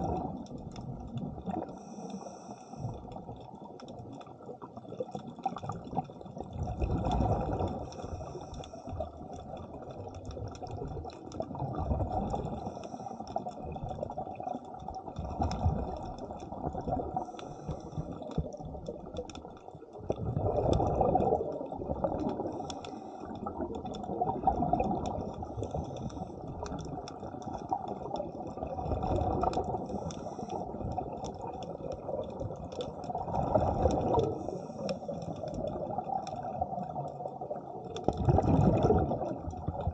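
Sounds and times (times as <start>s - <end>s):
diver's breath bubbling: 0.0s - 3.4s, 5.5s - 9.6s, 20.0s - 36.9s, 38.0s - 39.9s
underwater rush: 0.0s - 39.9s.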